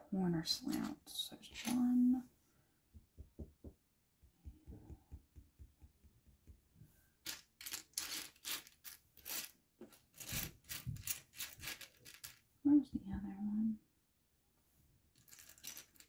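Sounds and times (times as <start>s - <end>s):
plastic bricks clicking and clattering: 7.2s - 12.4s, 15.2s - 16.0s.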